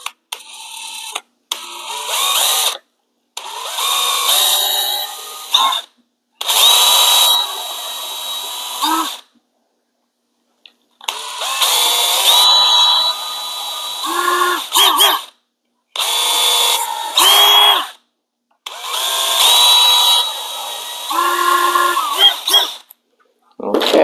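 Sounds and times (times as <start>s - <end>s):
cordless drill whining: 0.0s - 2.8s, 3.4s - 9.2s, 11.1s - 15.3s, 16.0s - 18.0s, 18.7s - 22.9s.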